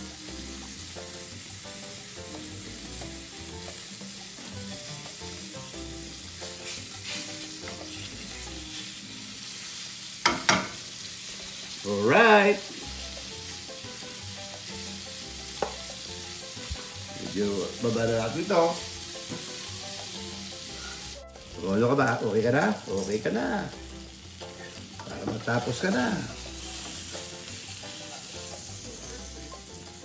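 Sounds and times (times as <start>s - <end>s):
food sizzling in a pan: 0.0s - 30.0s.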